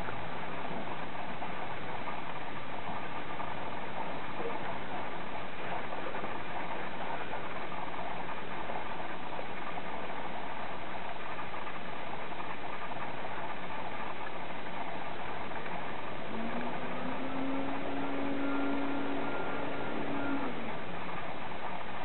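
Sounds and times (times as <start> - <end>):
steady mechanical running noise: 0.0 - 22.0
low hum rising in pitch: 15.6 - 21.5.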